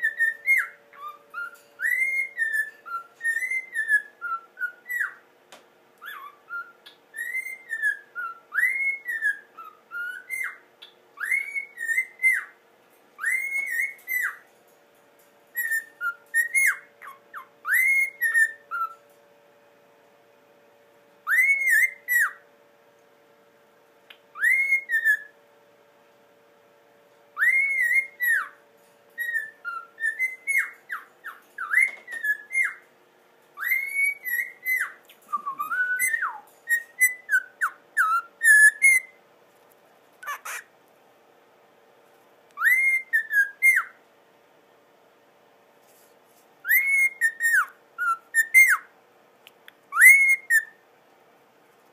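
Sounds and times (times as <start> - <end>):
cockatiel whistling: 0.0 - 5.2, 6.0 - 12.6, 13.2 - 14.5, 15.5 - 19.0, 21.2 - 22.4, 24.1 - 25.4, 27.4 - 28.6, 29.2 - 32.8, 33.6 - 39.2, 40.2 - 40.7, 42.6 - 44.0, 46.6 - 48.9, 49.9 - 50.8.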